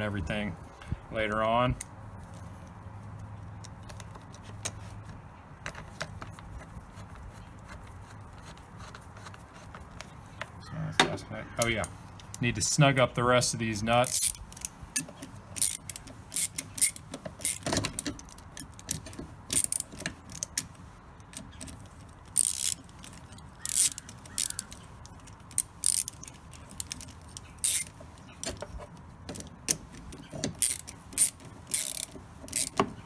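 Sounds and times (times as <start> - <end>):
socket ratchet clicking: 14.0 - 28.6, 29.3 - 33.0.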